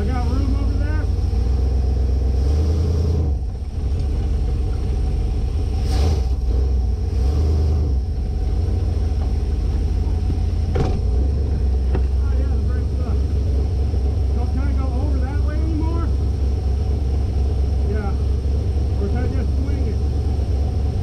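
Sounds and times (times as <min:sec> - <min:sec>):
engine low rumble: 0:00.0 - 0:21.0.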